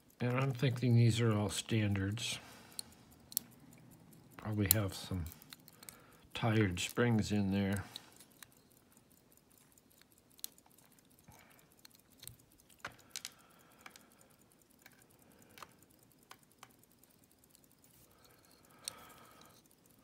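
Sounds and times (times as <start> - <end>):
tweezers clicking on metal: 0.0 - 20.0.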